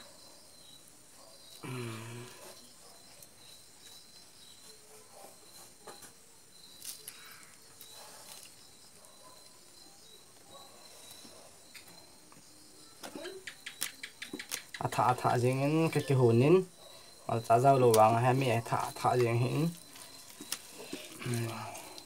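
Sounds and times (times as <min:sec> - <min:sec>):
insects chirping: 0:00.0 - 0:22.0.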